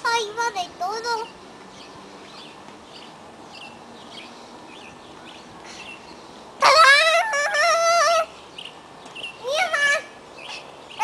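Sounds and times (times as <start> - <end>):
small birds chirping: 0.0 - 11.0
rooster crowing: 6.6 - 8.3.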